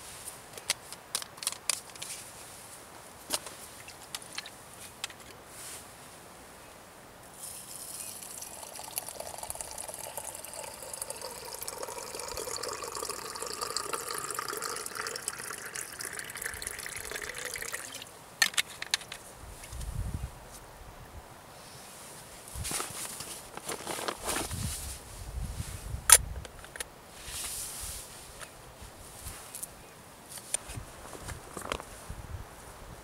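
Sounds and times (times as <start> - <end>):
water pouring into teapot: 7.7 - 18.1.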